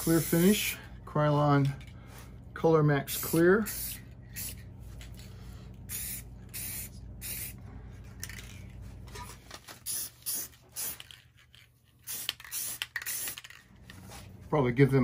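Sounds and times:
aerosol can spraying: 0.0s - 0.8s, 5.9s - 7.6s, 9.8s - 11.1s, 12.1s - 13.6s.

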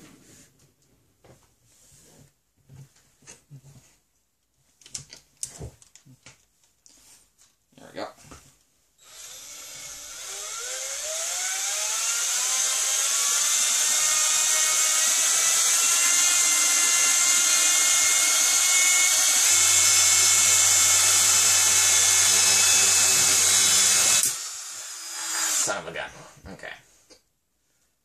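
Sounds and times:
drill spinning propeller whine: 9.0s - 25.8s.

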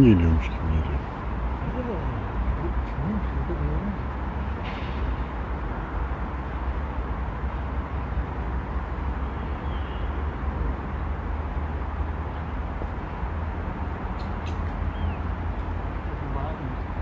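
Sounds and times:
faint high chirp: 9.4s - 10.2s.

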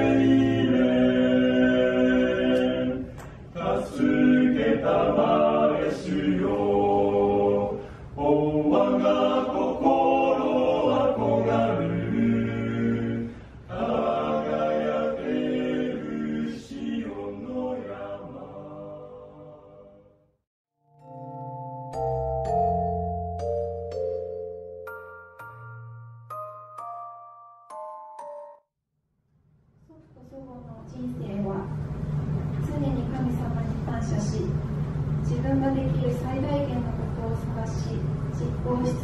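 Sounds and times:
male choir singing a hymn: 0.0s - 20.0s.

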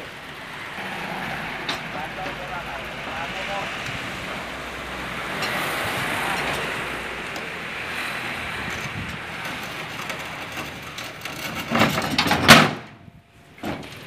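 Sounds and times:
clods and tailgate clattering: 8.6s - 14.0s.

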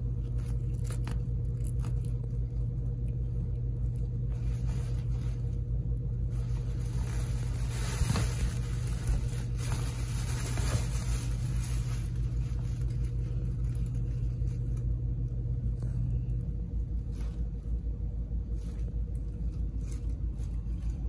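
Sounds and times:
steady low hum: 0.0s - 21.0s
fabric tunnel rustling: 4.2s - 15.1s, 16.9s - 21.0s.

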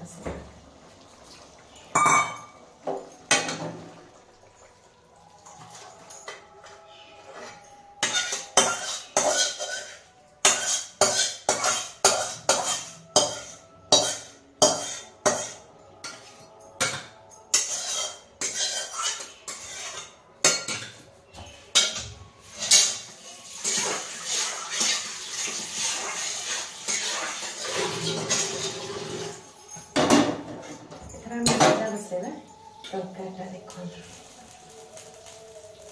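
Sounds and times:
metal spoon clinking on steel bowl: 1.8s - 3.7s, 5.5s - 23.8s, 28.0s - 33.2s
spoon scraping bowl: 6.6s - 16.6s, 17.5s - 29.6s.

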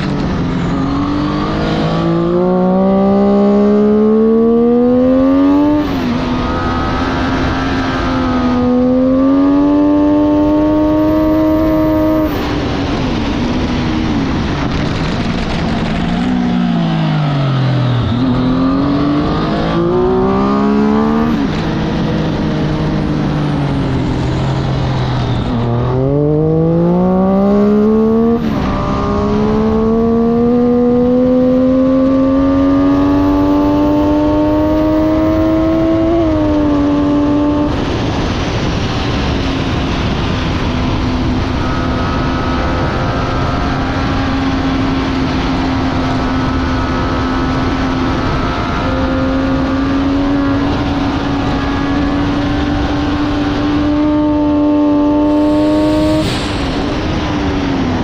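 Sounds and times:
heavy wind rush: 0.0s - 58.0s
motorcycle engine at full throttle: 0.0s - 58.0s.

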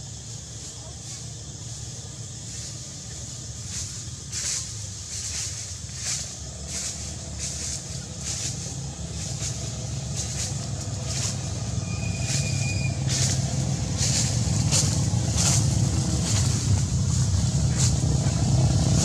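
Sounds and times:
vehicle engine hum: 0.0s - 19.0s
high whistle: 11.8s - 13.2s.

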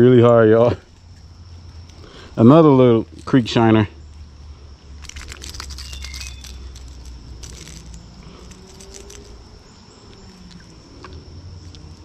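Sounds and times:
faint low rumble: 0.0s - 12.0s
rustling handling noise: 5.0s - 9.6s.

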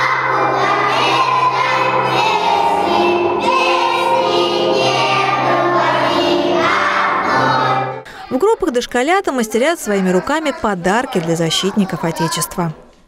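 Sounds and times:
children singing: 0.0s - 8.1s
recorded musical accompaniment: 0.0s - 8.1s.

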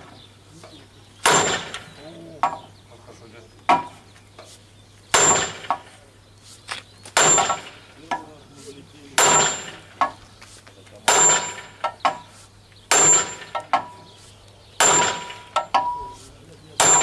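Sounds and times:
sledgehammer striking steel: 1.2s - 1.9s, 5.1s - 5.9s, 7.2s - 7.8s, 9.2s - 10.2s, 11.1s - 12.3s, 12.9s - 14.0s, 14.8s - 16.2s, 16.8s - 17.0s.

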